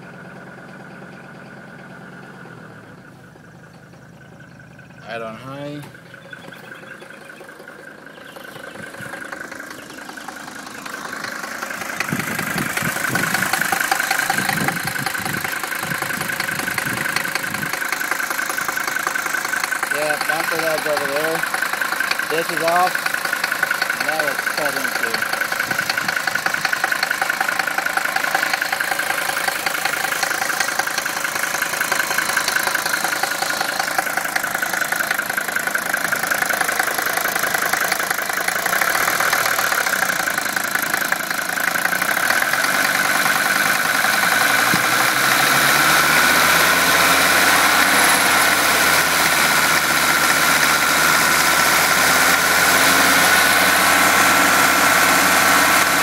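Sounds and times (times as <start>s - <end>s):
diesel engine idling: 0.0s - 56.0s.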